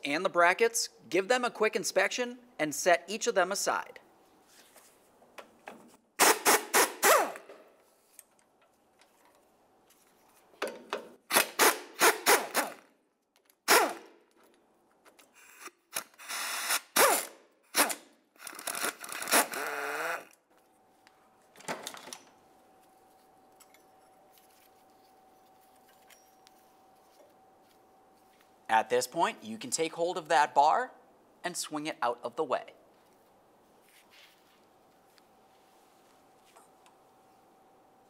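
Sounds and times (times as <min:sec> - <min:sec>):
power tool bursts and clatter: 0:06.2 - 0:07.5, 0:15.9 - 0:20.3
faint steady hum: 0:18.4 - 0:38.0.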